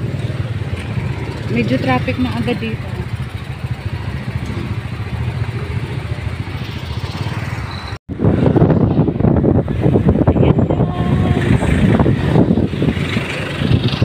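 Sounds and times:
motorcycle engine: 0.0s - 14.0s
road noise: 0.0s - 14.0s
wind rumble on microphone: 8.1s - 14.0s.

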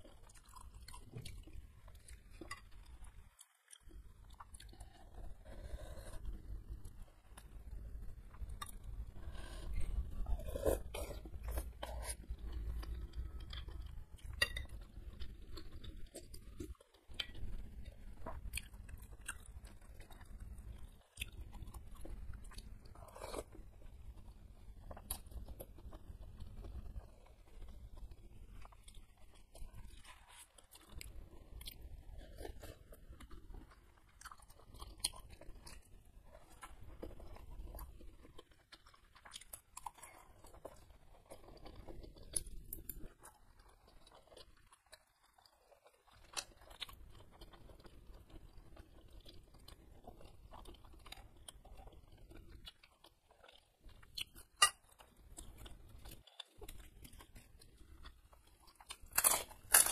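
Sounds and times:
person chewing noodles: 0.0s - 59.9s
cracker cracking: 58.8s - 59.9s.

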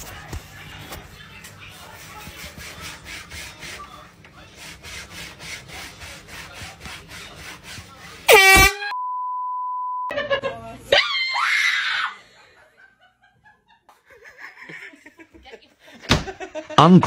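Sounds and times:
rubbing strokes of cleaning: 0.2s - 8.3s
air horn blast: 8.3s - 9.0s
censor bleep: 8.9s - 10.1s.

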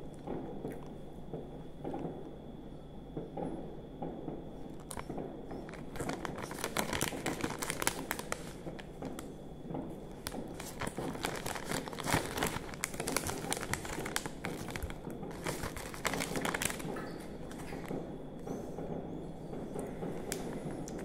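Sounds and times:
plastic packaging crinkling: 4.7s - 9.4s, 10.0s - 18.1s.

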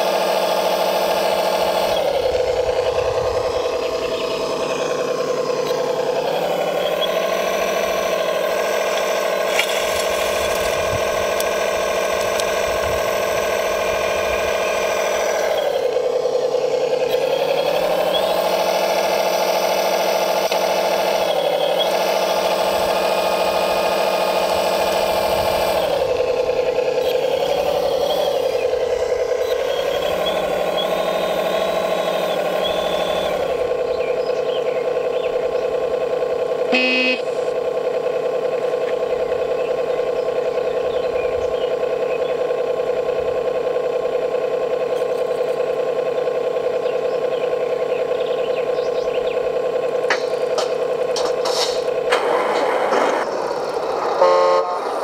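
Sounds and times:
electric pump whining: 0.0s - 55.0s
short beep: 36.7s - 37.3s.

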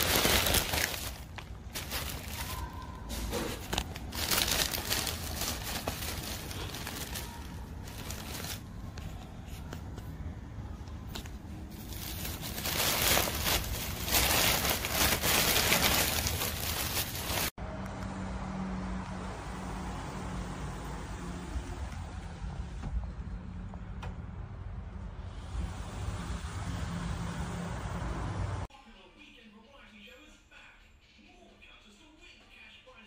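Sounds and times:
plastic bag pulled open: 0.0s - 8.7s, 11.7s - 17.5s
plastic packaging crinkling: 0.0s - 8.8s, 11.1s - 17.5s.

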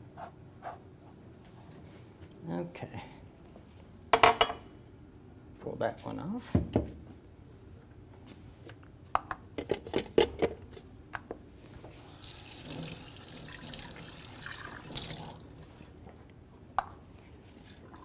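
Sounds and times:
faucet running: 12.1s - 15.8s.

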